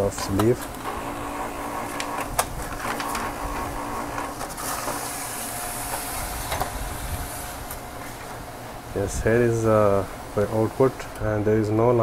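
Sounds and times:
printer motors whirring: 0.0s - 8.4s
printer clicks: 0.2s - 5.0s
steady high hiss: 5.1s - 12.0s.

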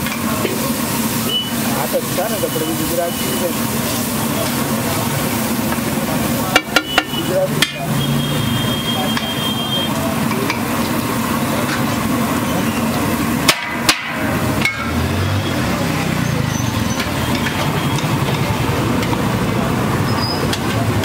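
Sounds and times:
egg sizzling on a griddle: 0.0s - 15.2s
metal spatula knocking on griddle: 6.6s - 7.9s, 13.5s - 14.9s.

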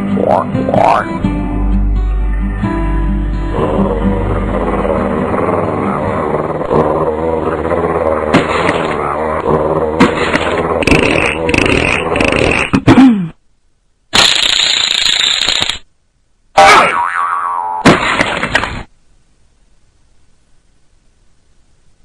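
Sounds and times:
background music: 0.0s - 10.3s.

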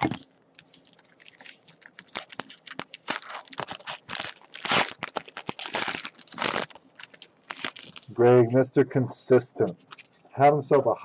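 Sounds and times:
foil wrapper crinkling and tearing: 0.0s - 8.1s, 9.8s - 10.2s.

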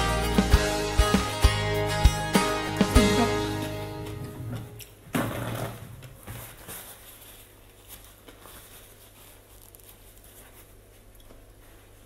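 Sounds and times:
paper tissue rustling: 6.2s - 12.0s.

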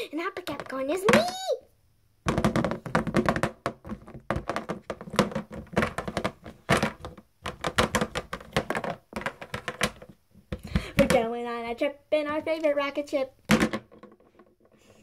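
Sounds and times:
toys knocking on hard floor: 2.3s - 11.2s, 13.5s - 14.5s
hands handling plastic toys: 2.3s - 11.3s.

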